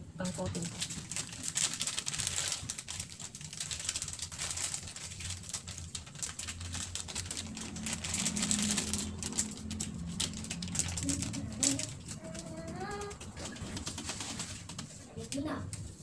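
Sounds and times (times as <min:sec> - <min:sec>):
plastic packet crinkling: 0:00.3 - 0:15.3
steady low hum: 0:04.0 - 0:16.0.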